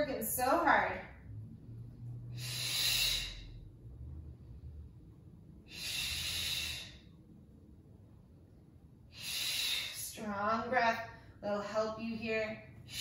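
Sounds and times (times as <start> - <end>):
woman breathing hard: 2.3 - 3.8, 5.6 - 7.2, 9.1 - 10.2, 12.8 - 13.0.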